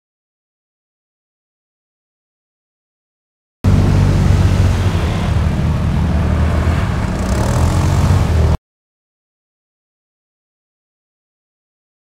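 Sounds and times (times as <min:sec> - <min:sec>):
quad bike engines running: 0:03.7 - 0:08.6.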